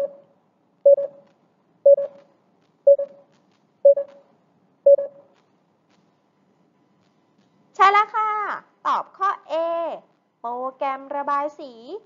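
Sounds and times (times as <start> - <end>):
short timer beeps: 0.9 - 1.2, 1.9 - 2.2, 2.9 - 3.2, 3.8 - 4.2, 4.9 - 5.2.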